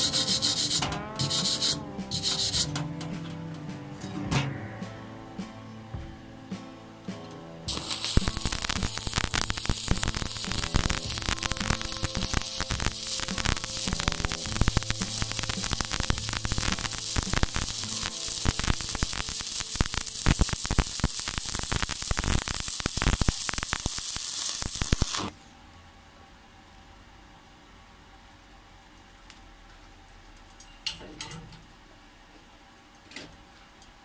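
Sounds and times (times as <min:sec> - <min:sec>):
welding arc crackling and sizzling: 0:00.0 - 0:02.8, 0:07.7 - 0:25.4.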